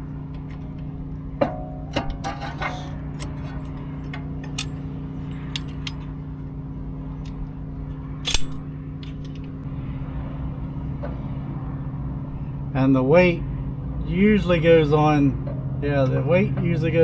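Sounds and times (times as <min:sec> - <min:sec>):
steady low hum: 0:00.0 - 0:17.0
metal clank: 0:01.4 - 0:06.1, 0:08.2 - 0:09.6
metallic clicks and clinks of tool: 0:02.0 - 0:06.1, 0:08.2 - 0:09.5.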